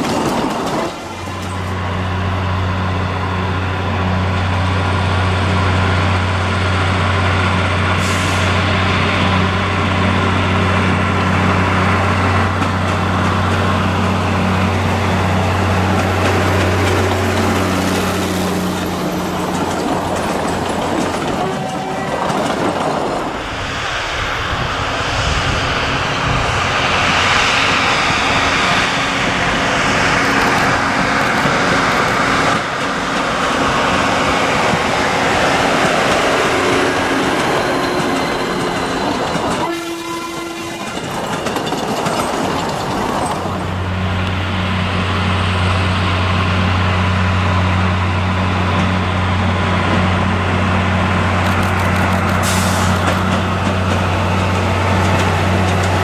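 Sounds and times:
diesel locomotive engine hum: 0.0 - 56.0
train wheels on rails: 0.0 - 56.0.

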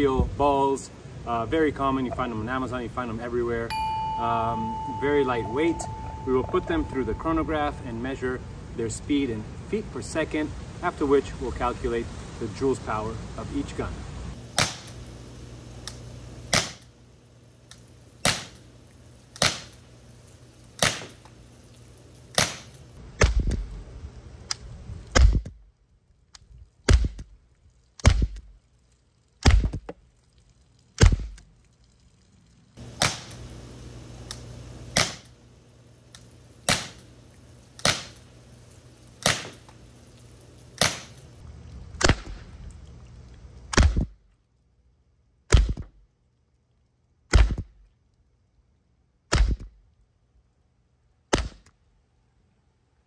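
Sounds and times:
air pistol shots popping: 14.6 - 15.0, 16.5 - 16.9, 18.2 - 18.6, 19.4 - 19.8, 20.8 - 21.2, 22.4 - 23.6, 33.0 - 33.4, 34.3 - 35.3, 36.7 - 37.0, 37.8 - 38.2, 39.2 - 39.6, 40.8 - 41.2, 42.0 - 42.4, 43.7 - 44.2, 45.5 - 45.9, 47.3 - 47.8, 49.3 - 49.8, 51.3 - 51.7.

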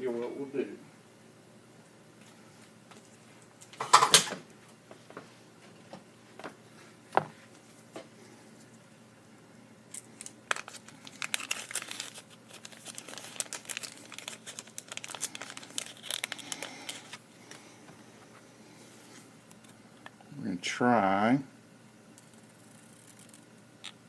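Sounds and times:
paper and plastic crinkling: 9.9 - 17.6.

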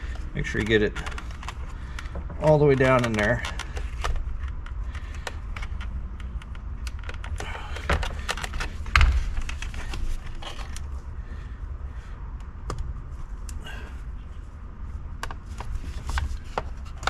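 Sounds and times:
plastic connectors clicking: 0.1 - 10.9.

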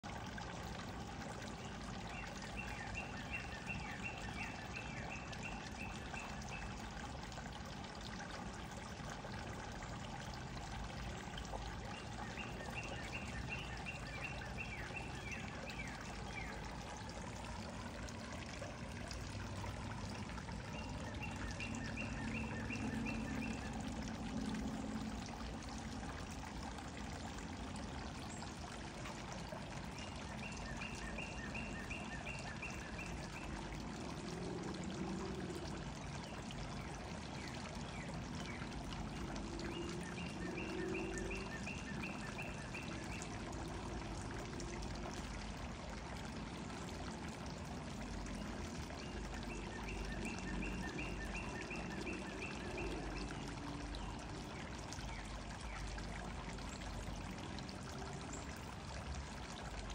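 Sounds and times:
songbird trill: 49.0 - 54.2.

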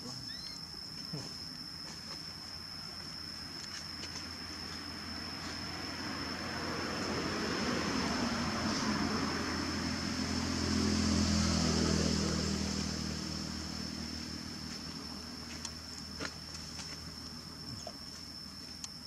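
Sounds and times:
steady high whine: 0.0 - 19.0
vehicle engine humming past: 4.9 - 16.1.

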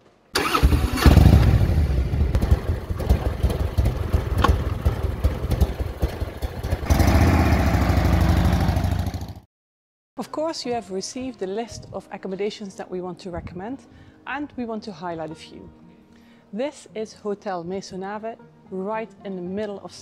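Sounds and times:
motorcycle engine revving: 0.4 - 9.5.

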